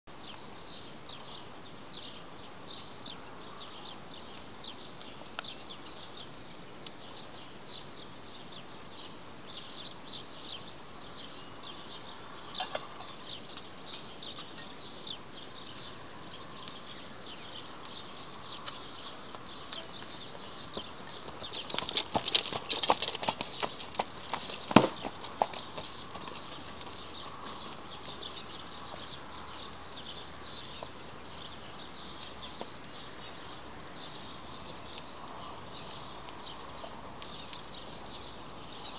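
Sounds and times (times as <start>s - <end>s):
small birds chirping: 0.1s - 38.9s
horse hoofbeats and clatter: 19.8s - 27.9s.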